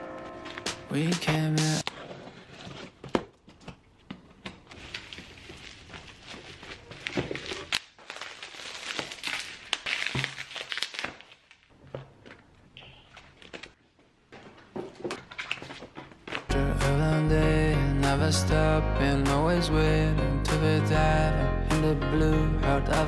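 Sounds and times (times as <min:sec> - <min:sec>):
bubble wrap crinkling: 0:04.6 - 0:12.4.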